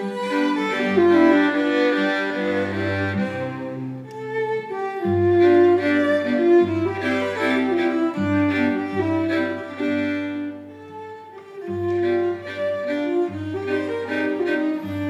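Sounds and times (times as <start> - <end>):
string ensemble playing chamber music: 0.0 - 15.0.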